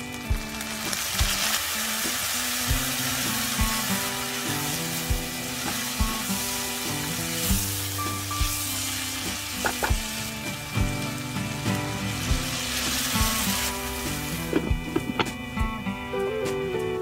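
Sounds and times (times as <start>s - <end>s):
background music with steady beat: 0.0s - 17.0s
food sizzling in hot oil: 0.0s - 17.0s.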